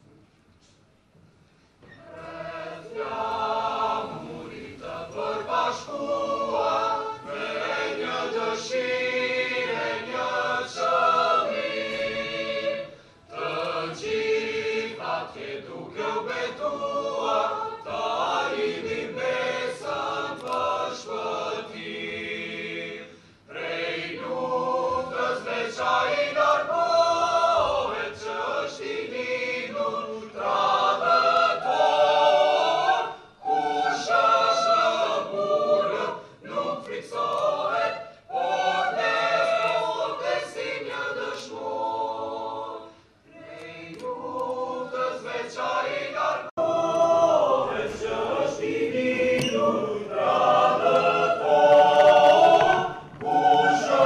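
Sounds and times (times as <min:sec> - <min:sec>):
youth choir singing: 0:01.9 - 0:54.0.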